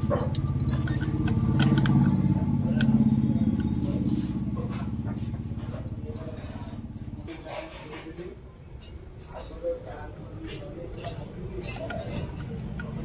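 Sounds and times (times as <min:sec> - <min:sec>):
small engine humming: 0:00.5 - 0:07.2.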